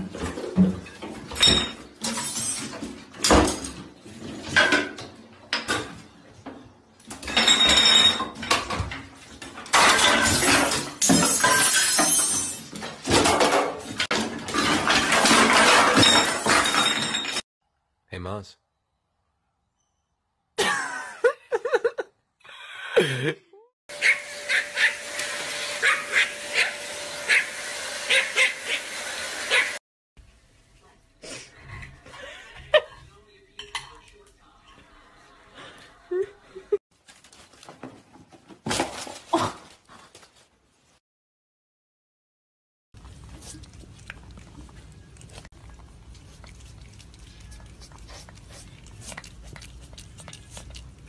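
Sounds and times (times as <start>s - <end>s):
small dog yapping: 24.0s - 25.0s, 25.8s - 27.5s, 28.1s - 28.8s, 29.5s - 29.8s
cat chewing food: 43.0s - 51.0s.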